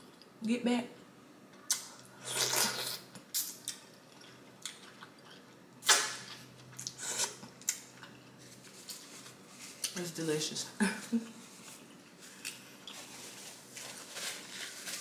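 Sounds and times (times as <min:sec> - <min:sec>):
sucking slurp: 0:02.2 - 0:03.1.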